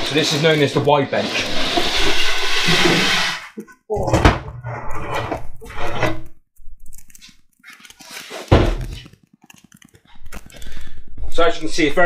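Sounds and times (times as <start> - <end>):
plywood sheet scraping and knocking: 0.0 - 6.3, 8.0 - 9.2
loud thud: 8.5 - 8.9.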